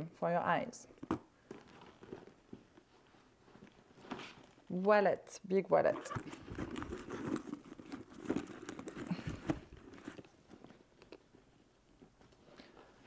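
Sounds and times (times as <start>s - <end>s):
wallet rustling into handbag: 5.8s - 11.2s.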